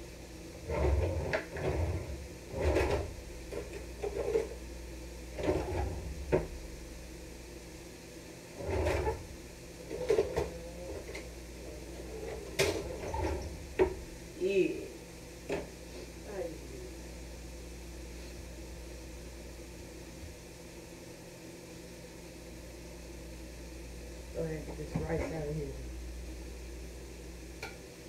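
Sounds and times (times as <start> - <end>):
wooden drawer opening and shutting: 5.4 - 6.5.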